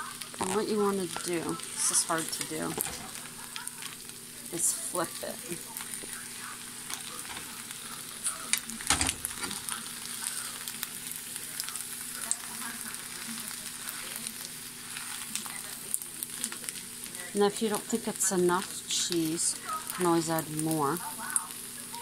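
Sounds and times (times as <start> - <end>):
food sizzling in pan: 0.0 - 22.0
spatula scraping pan: 0.4 - 3.9.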